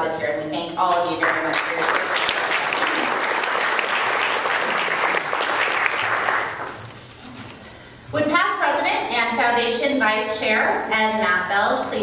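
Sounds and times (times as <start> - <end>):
audience applauding: 1.2 - 6.8.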